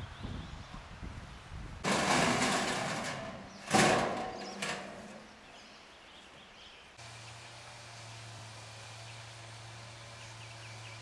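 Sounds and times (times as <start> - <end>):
metal panels rattling and clattering: 1.8 - 5.4
metal clang ringing: 1.9 - 5.4.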